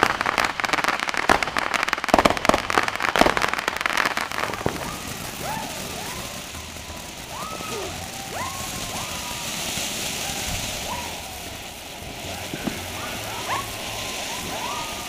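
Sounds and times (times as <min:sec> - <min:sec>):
firework fountain hissing: 0:00.0 - 0:15.0.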